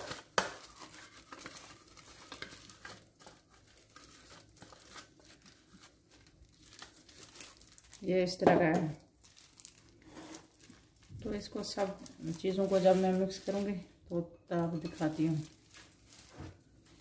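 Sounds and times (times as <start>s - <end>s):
plastic gloves crinkling: 0.0s - 17.0s.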